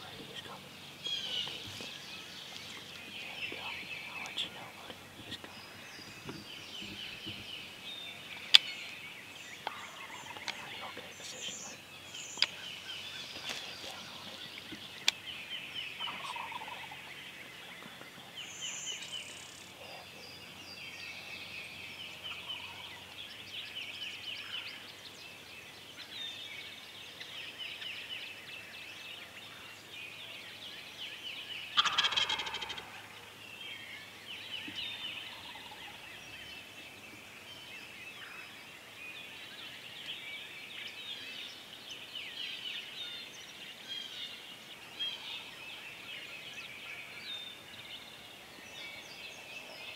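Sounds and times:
turkey gobbling: 31.8 - 33.0.

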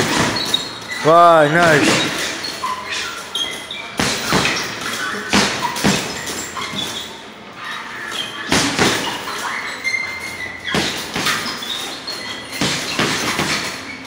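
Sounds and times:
dull thuds in a large room: 0.0 - 1.0, 1.6 - 2.6, 3.9 - 7.1, 10.6 - 11.6, 12.5 - 14.0.

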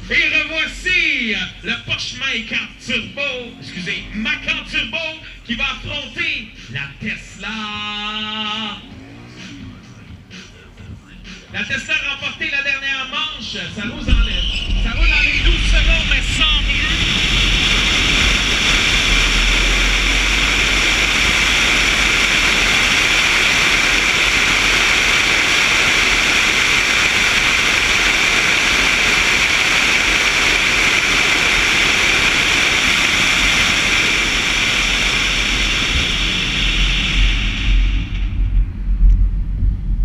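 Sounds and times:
road noise: 0.0 - 40.0
low rumble: 13.2 - 40.0
wind rushing: 13.8 - 40.0.

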